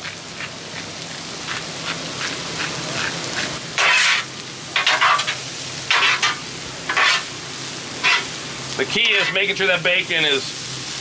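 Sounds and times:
food sizzling on a griddle: 0.0s - 11.0s
metal spatula scraping steel: 3.8s - 7.3s, 8.0s - 8.3s, 9.0s - 9.5s.

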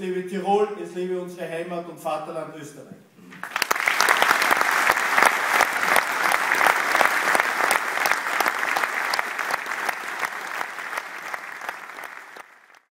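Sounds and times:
audience applauding: 3.3s - 12.9s.

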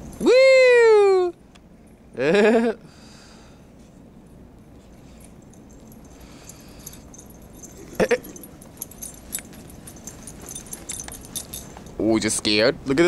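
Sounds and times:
light clicking and jingling: 4.2s - 12.3s.

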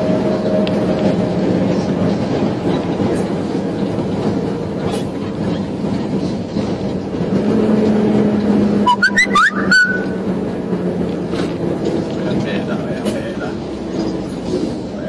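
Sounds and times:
heavy vehicle engine drone: 0.0s - 15.0s
road noise: 0.0s - 15.0s
high chirping whistles: 8.9s - 10.2s.

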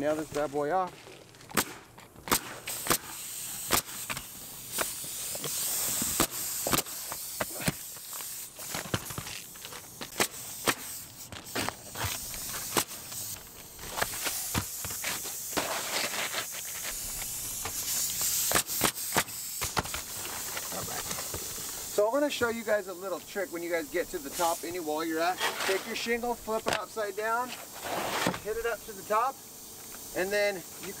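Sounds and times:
nail gun shots: 1.5s - 7.9s, 10.0s - 11.8s, 12.6s - 13.3s, 17.2s - 20.1s.

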